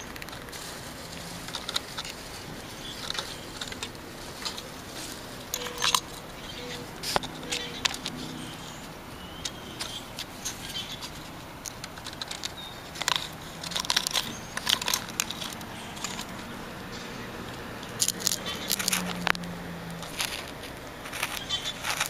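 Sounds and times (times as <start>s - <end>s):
squirrel cracking nut shell: 9.5s - 16.5s, 17.8s - 22.0s.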